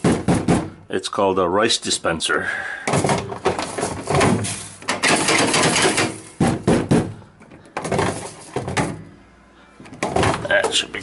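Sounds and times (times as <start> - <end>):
dispenser mechanism knocks: 2.9 - 7.1.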